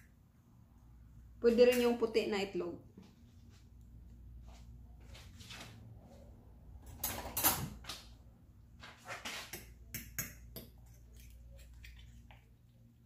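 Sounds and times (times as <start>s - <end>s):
kitchen knocks and scrapes: 8.9s - 10.8s.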